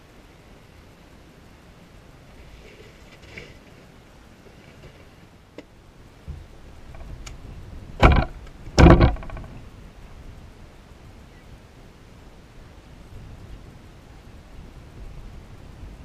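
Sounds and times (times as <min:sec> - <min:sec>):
gear clunking against truck bed: 0:08.0 - 0:09.6.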